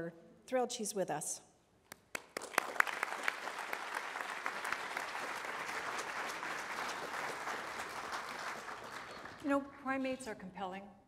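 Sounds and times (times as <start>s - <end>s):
audience applauding: 1.9s - 9.5s.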